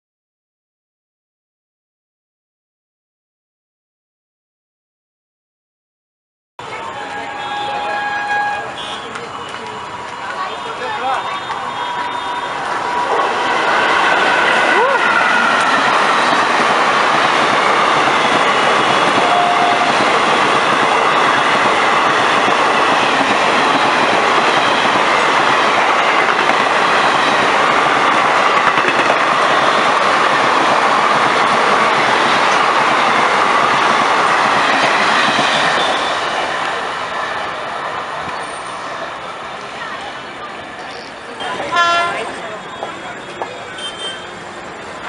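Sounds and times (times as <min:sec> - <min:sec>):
train wheels clattering on rails: 0:09.0 - 0:36.9.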